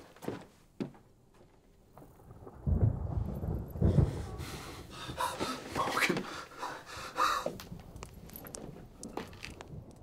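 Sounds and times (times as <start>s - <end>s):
man breathing heavily: 3.9s - 7.7s.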